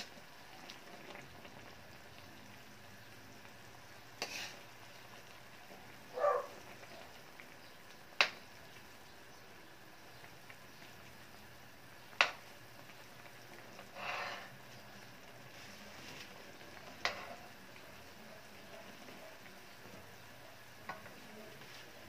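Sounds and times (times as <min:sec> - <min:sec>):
sauce simmering with faint sizzle: 0:00.0 - 0:22.0.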